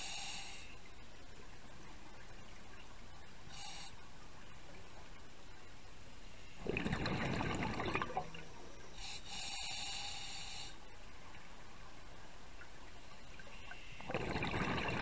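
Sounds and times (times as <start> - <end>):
regulator hissing inhalation: 0.0 - 0.8, 9.0 - 10.9
scuba exhalation bubbling: 6.6 - 8.4, 14.0 - 15.0.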